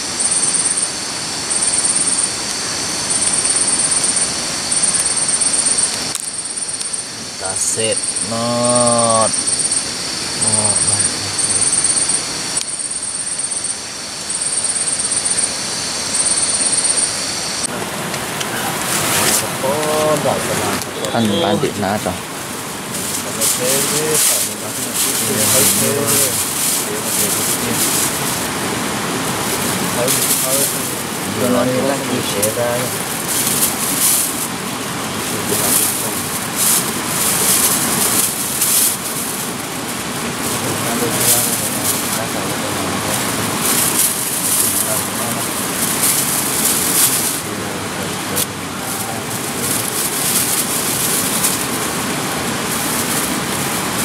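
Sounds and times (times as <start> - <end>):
steady rushing noise: 0.0 - 8.4, 9.2 - 54.0
insects chirping: 0.0 - 54.0
steady hiss: 0.0 - 54.0
plastic bags crinkling: 22.7 - 47.5, 48.3 - 54.0.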